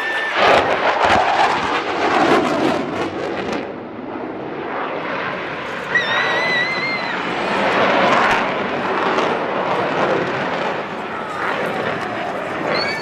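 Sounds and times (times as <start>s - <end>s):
jet roar with crackle: 0.0s - 13.0s
high steady whistling tone: 5.9s - 7.4s, 12.7s - 13.0s.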